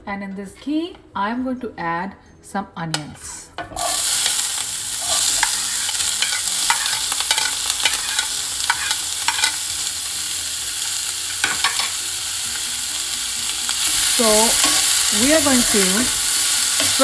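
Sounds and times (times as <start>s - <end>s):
onion sizzling in hot fat: 3.8s - 17.0s.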